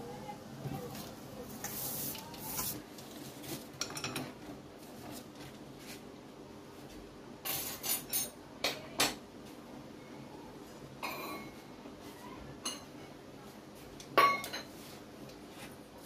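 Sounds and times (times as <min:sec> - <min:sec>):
cutlery and dishes clinking: 0:03.8 - 0:04.4, 0:07.4 - 0:09.2, 0:14.1 - 0:14.8.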